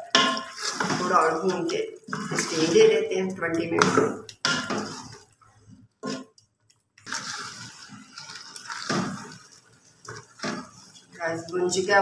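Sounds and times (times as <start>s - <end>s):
spoon scraping a pot: 0.0s - 6.4s, 7.0s - 11.5s
sauce squelching: 4.2s - 11.2s.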